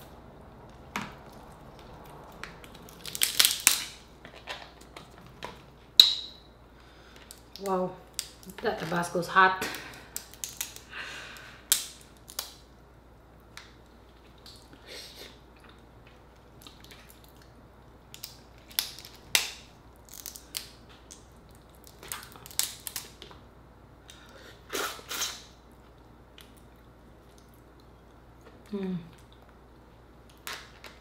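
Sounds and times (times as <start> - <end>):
crab shell cracking: 1.0 - 4.0, 7.2 - 8.6, 9.8 - 12.6, 18.1 - 23.3.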